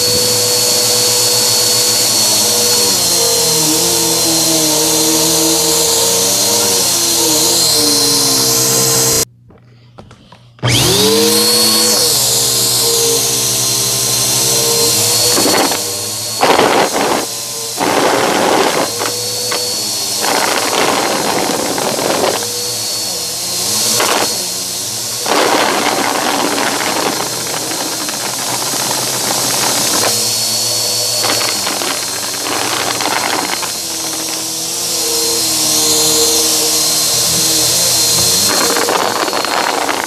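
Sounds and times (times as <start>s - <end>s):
vacuum cleaner motor humming: 0.0s - 9.3s, 10.6s - 40.0s
debris rattling through vacuum: 23.7s - 34.9s.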